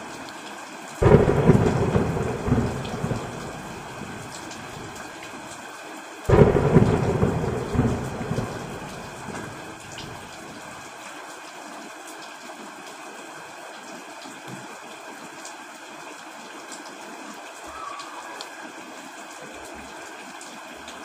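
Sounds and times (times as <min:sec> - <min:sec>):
heavy rain: 0:00.0 - 0:21.0
thunder rumble: 0:01.0 - 0:05.1, 0:06.3 - 0:10.7.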